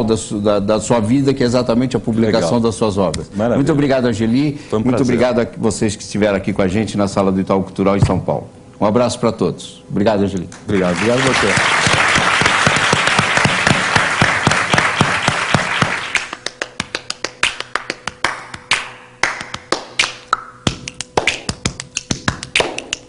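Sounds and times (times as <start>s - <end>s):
audience applauding: 10.7s - 18.5s.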